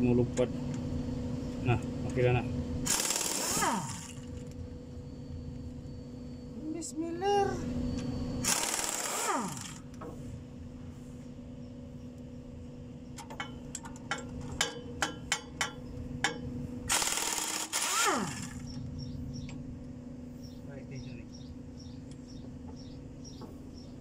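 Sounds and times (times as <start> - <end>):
steady low hum: 0.0 - 24.0
air impact wrench bursts: 2.9 - 4.3, 8.4 - 9.9, 16.9 - 18.6.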